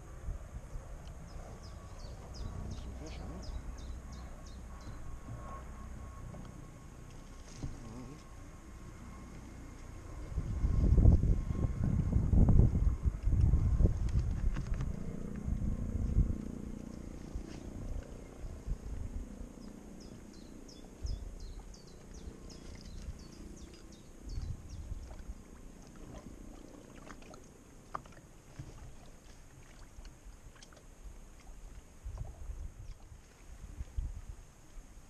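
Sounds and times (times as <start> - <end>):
wind buffeting microphone: 9.9 - 25.4, 32.0 - 34.4.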